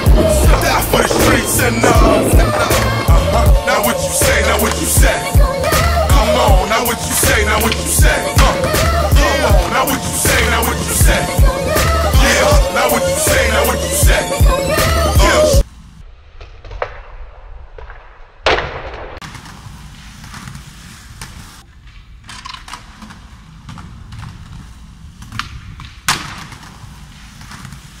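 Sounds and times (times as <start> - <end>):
skateboard slapping on concrete: 0.0 - 5.2, 25.2 - 28.0
skateboard wheels rolling on concrete: 0.0 - 15.7, 19.2 - 28.0.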